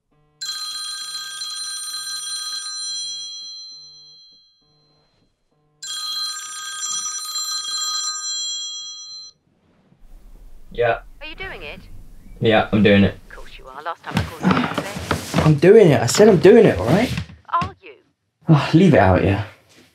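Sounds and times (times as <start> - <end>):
mobile phone ringtone: 0.4 - 9.4
low pulsing buzz: 10.0 - 13.7.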